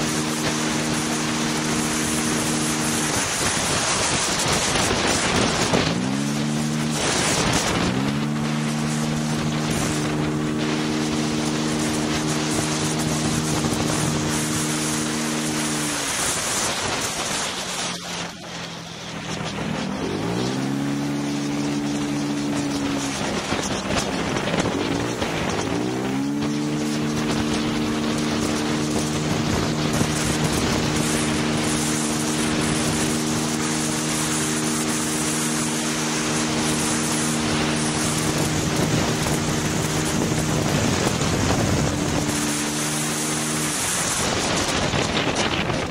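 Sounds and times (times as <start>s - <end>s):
motorcycle engine pulling: 0.0s - 45.9s
wind rush on microphone: 0.0s - 45.9s.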